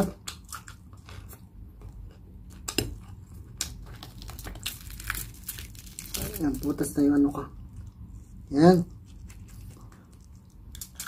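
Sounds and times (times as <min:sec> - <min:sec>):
low steady hum: 0:00.0 - 0:11.0
crisp pork skin crackling: 0:02.6 - 0:08.1, 0:09.0 - 0:11.0.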